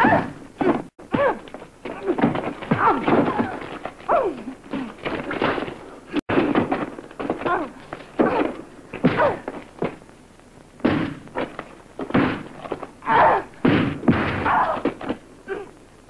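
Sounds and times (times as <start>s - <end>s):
women grunting and crying out: 0.0s - 5.1s, 7.4s - 9.6s, 13.0s - 13.6s, 14.4s - 15.8s
punch impacts: 6.3s - 10.0s, 10.8s - 12.6s, 13.2s - 15.2s.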